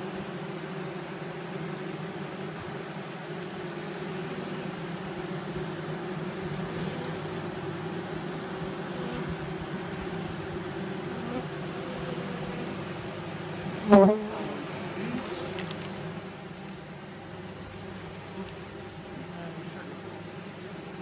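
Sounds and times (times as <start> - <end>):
bee flying past microphone: 0.0 - 16.6
honeybees buzzing: 0.0 - 21.0.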